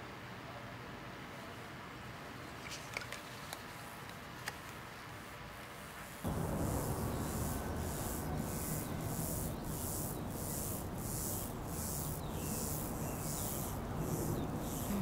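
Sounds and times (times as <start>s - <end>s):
pulsing high hiss: 6.2s - 15.0s
low steady rumble: 6.3s - 15.0s.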